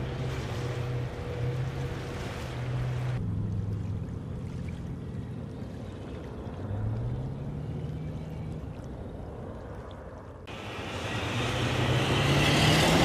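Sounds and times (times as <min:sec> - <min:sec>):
diesel engines droning: 0:00.0 - 0:09.6, 0:10.5 - 0:13.0
engine revving up: 0:10.7 - 0:13.0.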